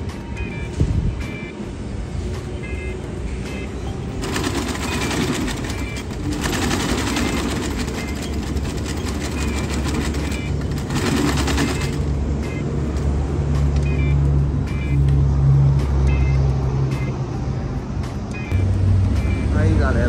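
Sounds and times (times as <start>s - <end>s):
sewing machine needle clatter: 4.2s - 12.0s.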